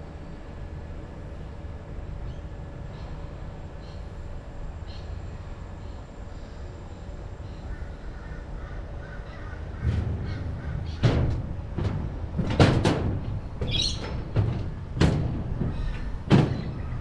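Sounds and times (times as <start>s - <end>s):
faint bird calls: 2.3s - 4.2s, 4.8s - 11.0s
heavy footsteps on metal walkway: 9.4s - 17.0s.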